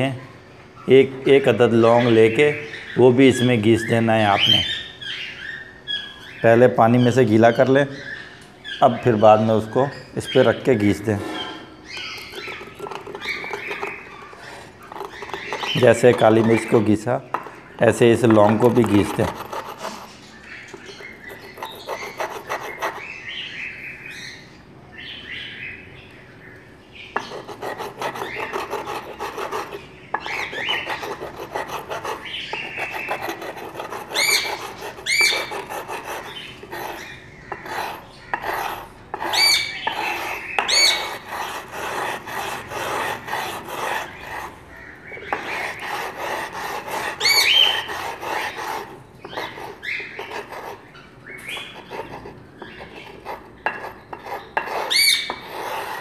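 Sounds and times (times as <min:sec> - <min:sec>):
clove scraping on wet stone: 0:11.9 - 0:16.8, 0:18.2 - 0:23.1, 0:27.2 - 0:44.6, 0:45.3 - 0:56.0.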